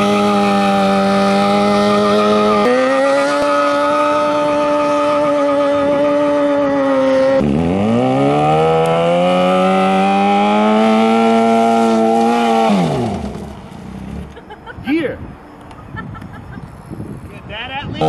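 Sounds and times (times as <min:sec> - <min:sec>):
motorcycle engine revving high: 0:00.0 - 0:14.4
tyre spinning on asphalt: 0:00.0 - 0:14.4.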